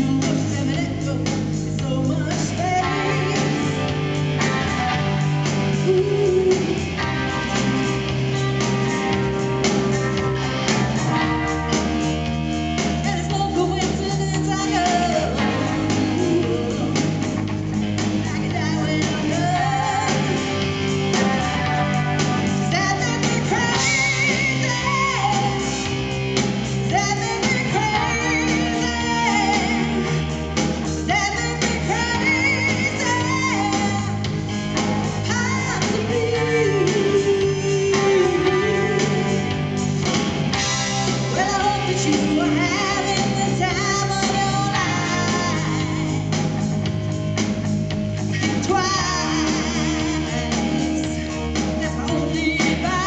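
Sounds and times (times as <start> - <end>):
woman singing: 0.0 - 12.1, 12.8 - 26.2, 26.8 - 39.8, 41.1 - 46.6, 48.3 - 53.0
live rock band playing: 0.0 - 53.0.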